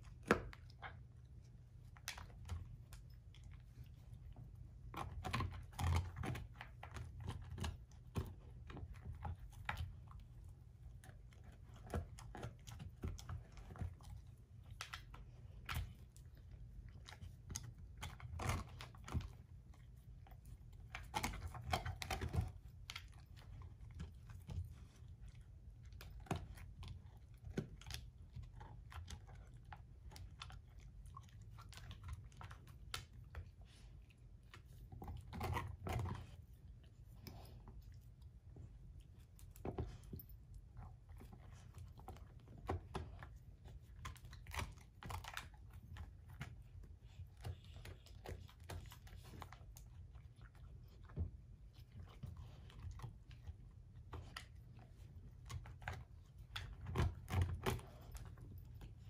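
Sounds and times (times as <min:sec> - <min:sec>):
dog chewing and crunching: 0:00.0 - 0:59.0.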